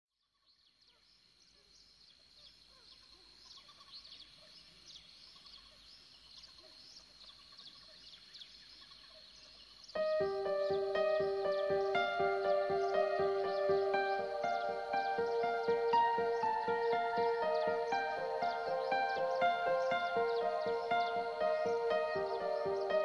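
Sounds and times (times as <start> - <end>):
small birds chirping: 2.9 - 23.0
music with bell-like notes: 10.0 - 23.0.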